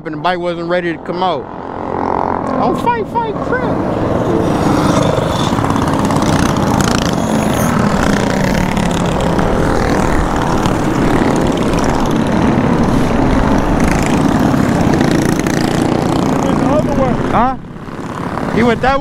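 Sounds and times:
mini bike engines running: 0.4 - 19.0.

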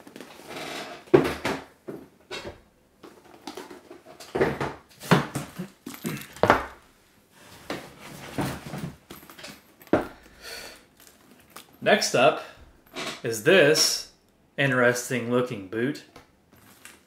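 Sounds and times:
boots knocking and thumping: 4.3 - 6.8, 9.9 - 10.2.

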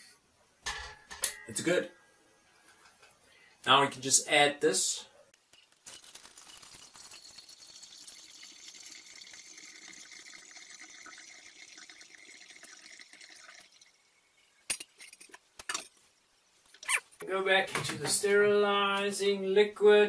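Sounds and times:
liquid trickling through a funnel: 5.7 - 14.7
glass clinks and knocks: 14.7 - 16.0.

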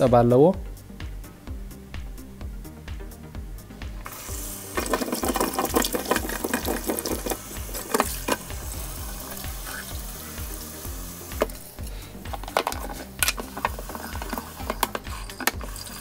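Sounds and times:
background music with low beat: 0.0 - 16.0
tap water running and splashing: 4.0 - 16.0.

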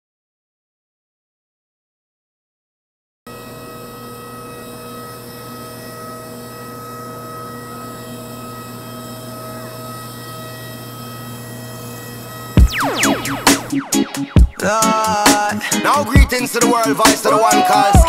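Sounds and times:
aircraft mechanical drone: 6.4 - 17.0.

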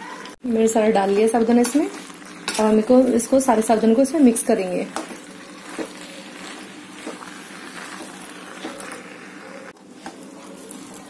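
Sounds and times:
spatula scraping a metal pan: 5.3 - 9.7.

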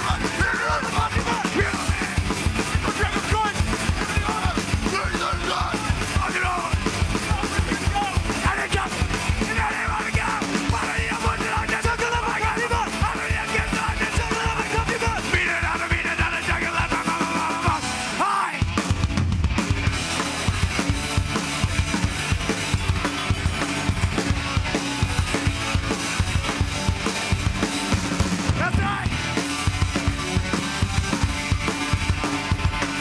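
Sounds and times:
person yelling vocals: 0.0 - 2.1, 2.9 - 18.6, 28.6 - 29.2
punk band playing live: 0.0 - 33.0.

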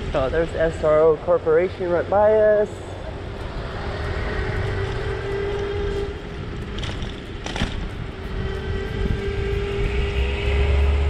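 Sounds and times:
road and wind rumble: 0.0 - 11.0
electric motor whine: 8.0 - 11.0.

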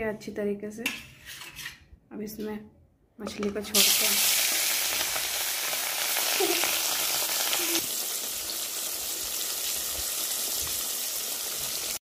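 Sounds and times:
fish sizzling in hot oil: 3.7 - 12.0.

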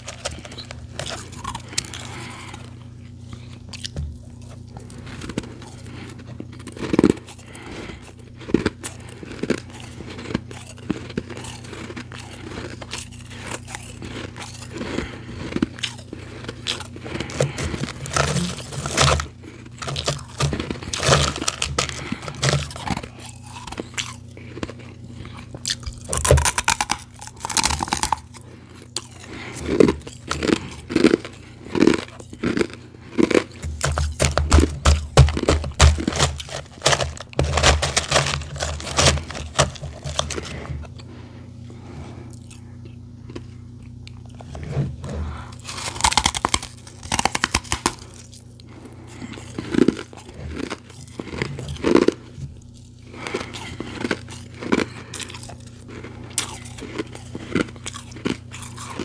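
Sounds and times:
chewing crunchy ice: 0.0 - 59.0
steady low hum: 0.0 - 59.0
fingers digging through ice: 8.6 - 25.4, 29.0 - 40.8, 45.6 - 48.1.

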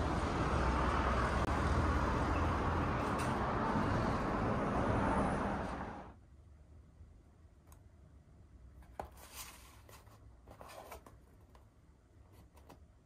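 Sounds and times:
road traffic hum: 0.0 - 7.2.

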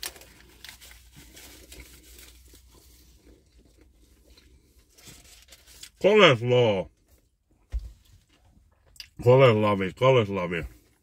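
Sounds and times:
paper wrapper crinkling: 0.0 - 3.8, 4.9 - 6.0.

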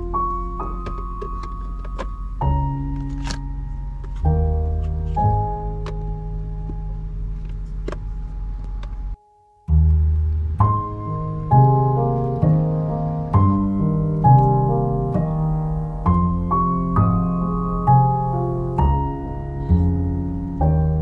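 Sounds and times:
gentle piano music: 0.0 - 21.0.

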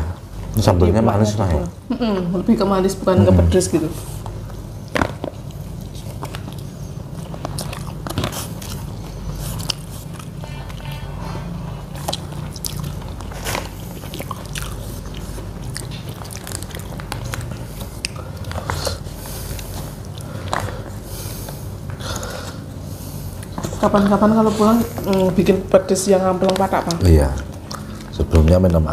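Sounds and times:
chewing and crunching food: 3.9 - 28.9.

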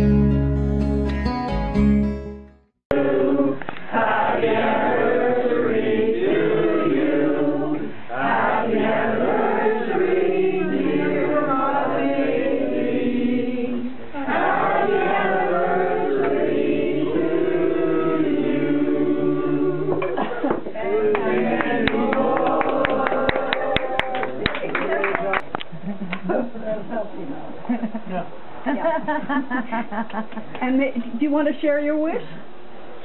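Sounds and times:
group singing in unison: 2.9 - 24.4.

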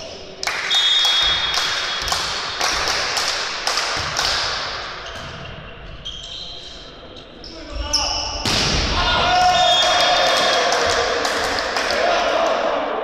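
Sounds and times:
rhythmic clapping: 0.4 - 4.7, 10.3 - 12.1
referee's whistle blowing: 0.6 - 1.5
crowd cheering: 9.0 - 13.0.

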